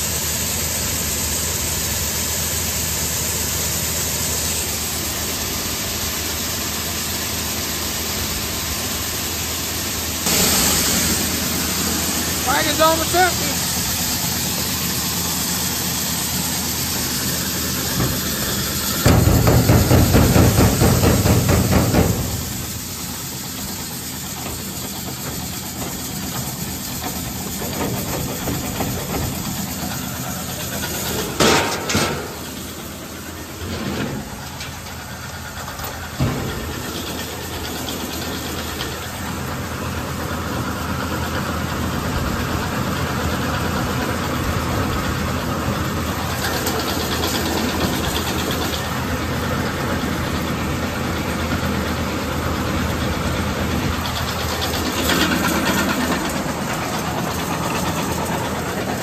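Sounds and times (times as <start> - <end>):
grain auger running: 0.0 - 59.0
tractor engine running: 0.0 - 59.0
sharp metal knocks: 19.0 - 22.6.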